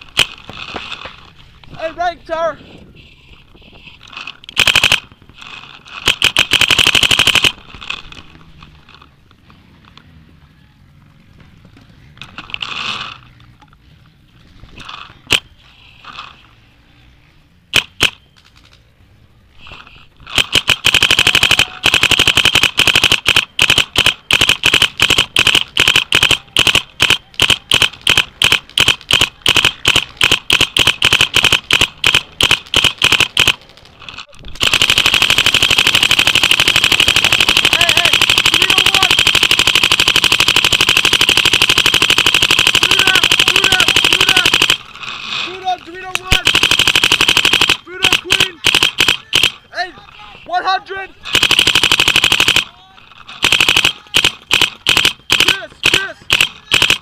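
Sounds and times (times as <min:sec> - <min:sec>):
paintball marker firing: 0:04.5 - 0:05.2, 0:17.7 - 0:18.3, 0:20.3 - 0:44.9, 0:46.1 - 0:49.6, 0:51.3 - 0:52.7, 0:53.3 - 0:57.0.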